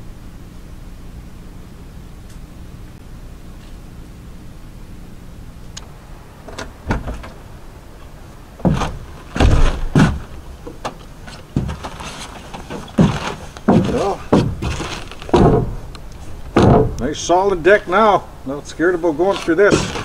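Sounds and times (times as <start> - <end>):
boots thudding on wooden deck: 8.6 - 17.1.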